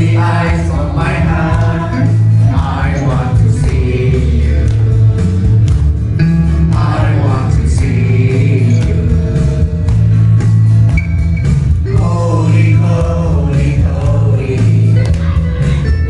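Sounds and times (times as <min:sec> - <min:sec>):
man singing into microphone: 0:00.0 - 0:05.4, 0:06.7 - 0:09.9, 0:11.9 - 0:15.4
music with heavy bass line: 0:00.0 - 0:16.0.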